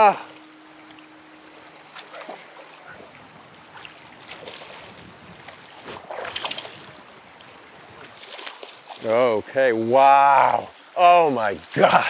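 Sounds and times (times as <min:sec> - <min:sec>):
running river water: 0:00.0 - 0:12.0
fish splashing at surface: 0:05.8 - 0:06.9.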